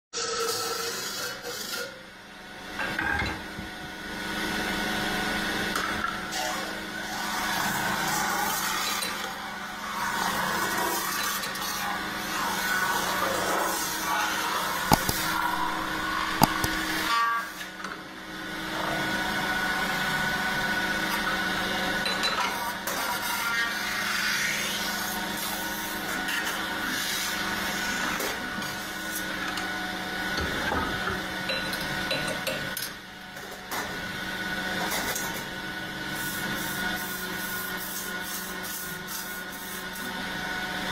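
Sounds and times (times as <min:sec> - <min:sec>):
tool scraping spinning sheet metal: 0:10.8 - 0:17.1
lathe humming: 0:14.8 - 0:17.1
sharp clicks: 0:14.9 - 0:17.0.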